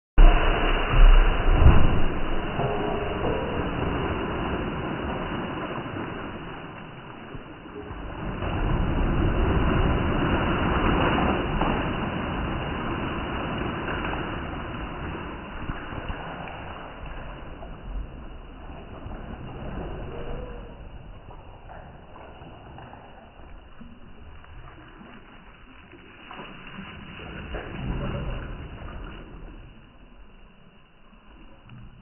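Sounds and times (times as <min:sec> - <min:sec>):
pot plunging into water: 0:00.2 - 0:06.7
water splashing in a well: 0:00.2 - 0:32.0.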